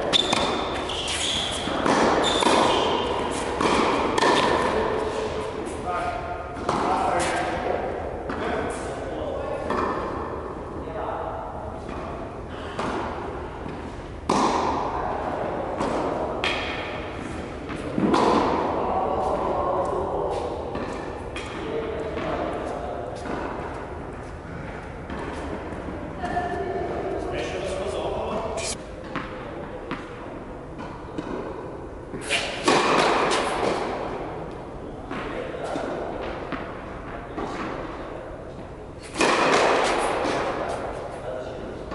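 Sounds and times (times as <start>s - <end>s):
racket striking ball: 0.0s - 5.5s, 12.7s - 14.9s, 15.7s - 17.1s, 17.7s - 18.7s, 30.8s - 34.2s, 38.6s - 41.2s
tennis balls struck and bouncing: 0.0s - 5.5s, 6.5s - 7.6s, 11.8s - 24.1s, 25.0s - 26.4s, 28.3s - 41.2s
tennis ball bouncing on court: 0.1s - 5.2s, 12.8s - 14.8s, 15.8s - 16.9s, 29.0s - 30.2s, 30.8s - 31.6s, 39.2s - 41.0s.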